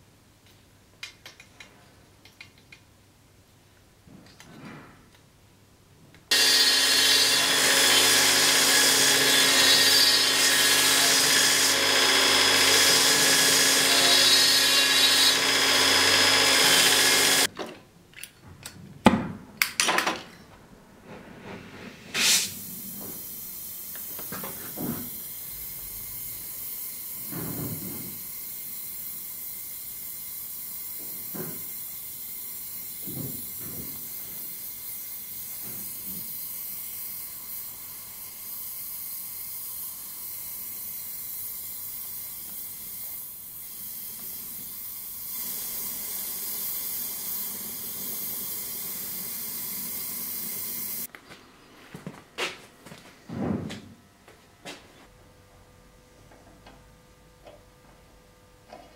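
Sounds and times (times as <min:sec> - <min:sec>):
gas torch hissing: 0:21.7 - 0:51.1.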